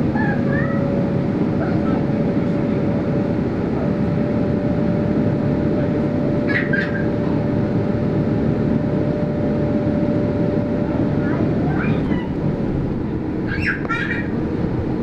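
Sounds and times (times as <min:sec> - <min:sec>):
bus engine and road noise: 0:00.0 - 0:15.0.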